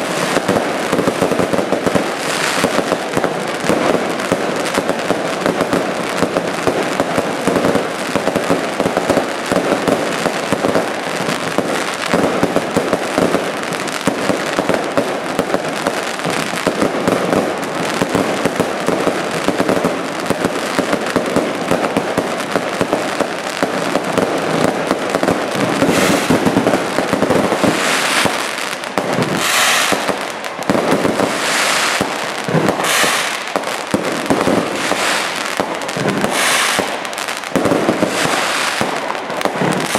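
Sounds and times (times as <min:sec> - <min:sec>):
crackling firework stars: 0:00.0 - 0:39.9
fireworks bangs and pops: 0:00.0 - 0:39.9.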